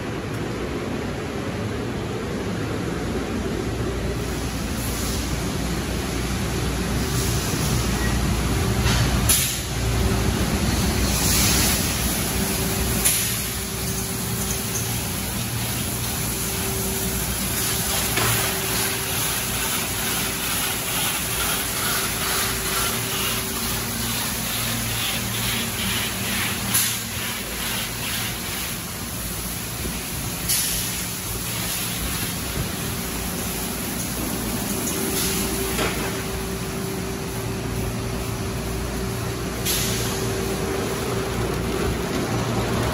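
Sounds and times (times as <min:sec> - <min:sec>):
motors and pumps humming: 0:00.0 - 0:42.9
spraying water: 0:09.3 - 0:42.9
sharp air hisses: 0:39.6 - 0:40.3.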